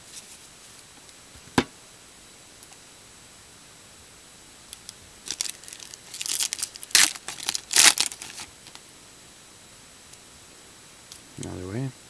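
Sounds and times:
foil wrapper tearing and crinkling: 5.2s - 8.8s.

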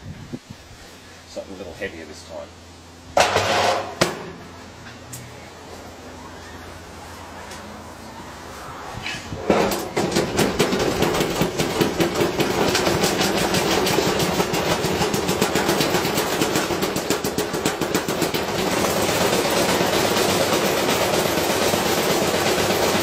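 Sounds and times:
unbalanced load banging: 3.1s - 5.0s, 9.3s - 23.0s
washing machine drum spinning: 9.4s - 23.0s.

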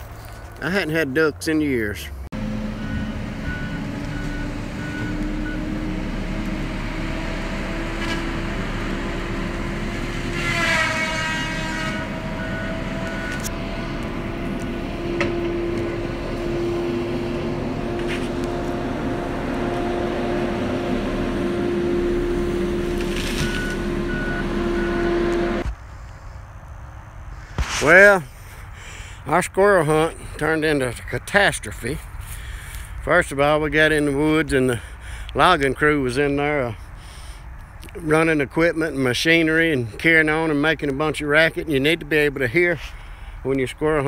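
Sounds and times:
diesel engine running under load: 2.1s - 25.7s
reversing alarm beeping: 2.6s - 5.9s, 12.1s - 13.5s, 23.4s - 25.6s.

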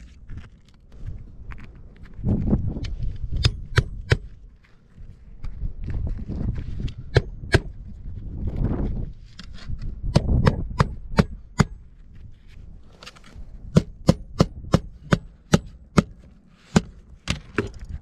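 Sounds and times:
low rumble: 0.0s - 13.8s
hammer striking roofing nails: 13.7s - 17.7s.

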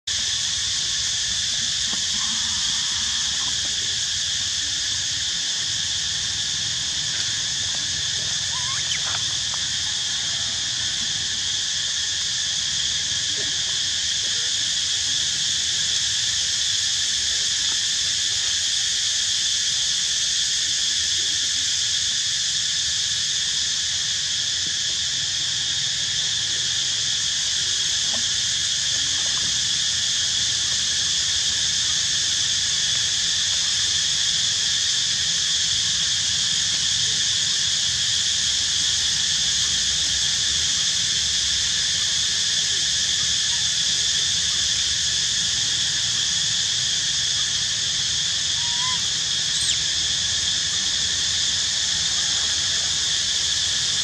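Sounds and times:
insect chorus drone: 0.0s - 54.0s
faint short squeaks: 8.5s - 9.3s.

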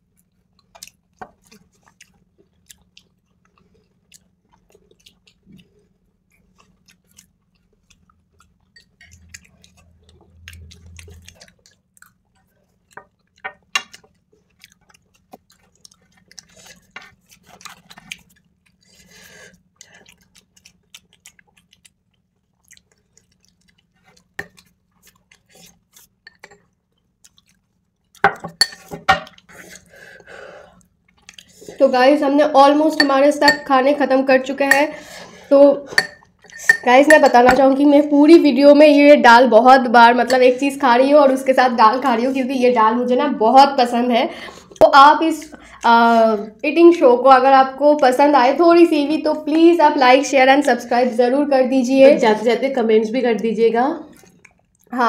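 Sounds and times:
people chewing food: 0.0s - 38.8s, 44.4s - 46.6s, 54.0s - 55.0s
faint low hum: 0.0s - 55.0s
spoon clicking on glass bowls: 28.4s - 28.9s, 33.0s - 33.7s, 36.0s - 37.6s.

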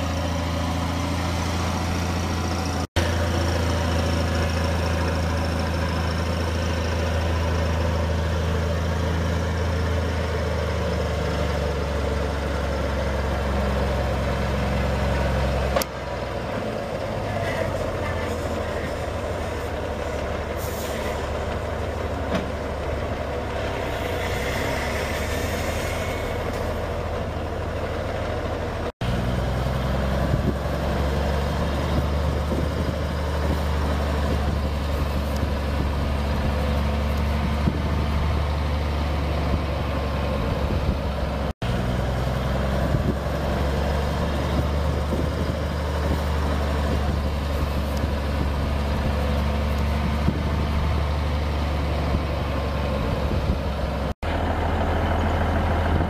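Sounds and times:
diesel truck engine drone: 0.0s - 56.0s.

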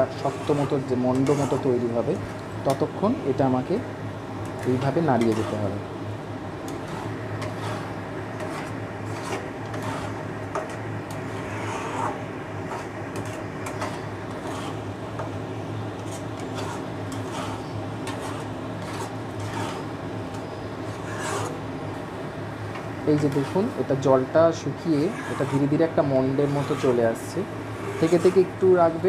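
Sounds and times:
spatula scraping paste in a pan: 0.0s - 2.4s, 4.4s - 5.8s, 6.7s - 19.9s, 20.9s - 21.6s, 24.9s - 29.0s.

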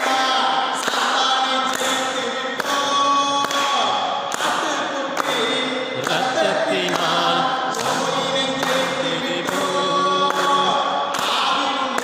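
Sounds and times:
hand claps: 0.0s - 12.0s
hymn singing: 0.0s - 12.0s.

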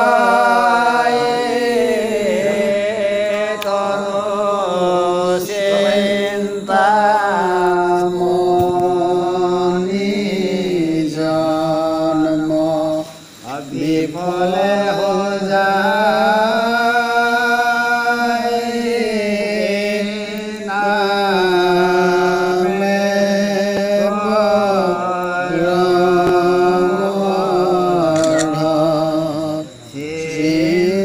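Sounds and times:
man chanting in held notes: 0.0s - 31.0s.

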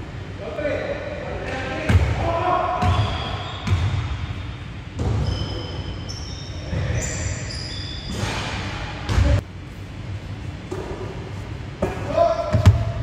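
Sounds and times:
short high squeaks: 5.2s - 8.4s
basketball bouncing on hardwood: 12.5s - 12.9s.

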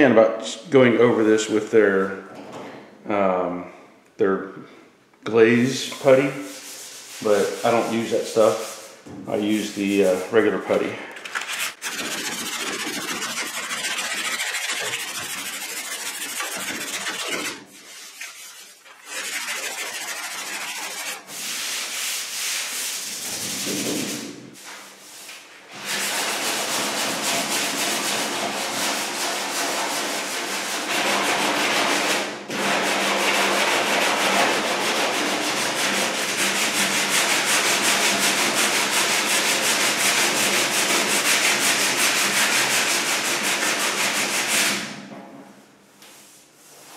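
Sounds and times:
sanding block rasping: 6.4s - 10.2s, 11.3s - 24.3s, 25.8s - 44.9s.

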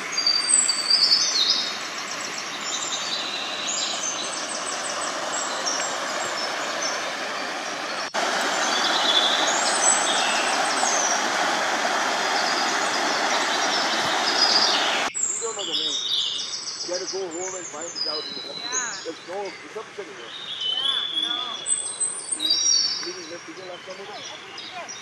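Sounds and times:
waterfall rushing over rocks: 0.0s - 15.1s
small birds chirping: 0.0s - 25.0s.

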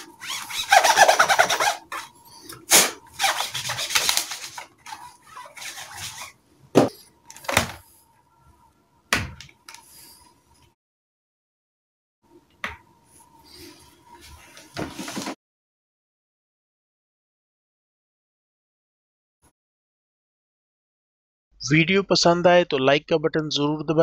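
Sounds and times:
cloth rubbing on laptop lid: 0.0s - 2.2s, 3.1s - 7.0s.

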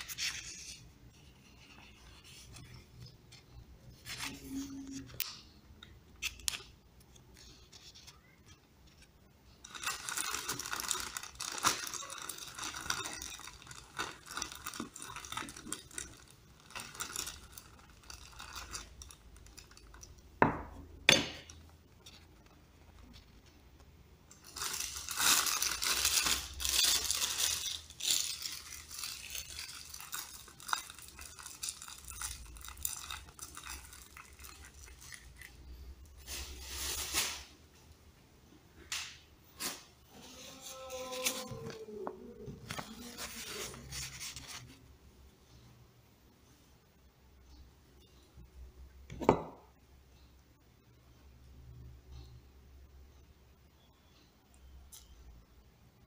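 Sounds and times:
plastic bag crinkling: 9.6s - 20.2s, 24.3s - 37.6s, 42.6s - 44.8s.

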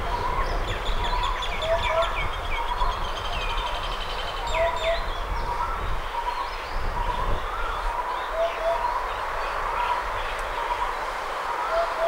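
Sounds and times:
small birds chirping: 0.0s - 12.0s
bird hooting hoop-hoop: 7.6s - 9.1s, 11.5s - 12.0s.

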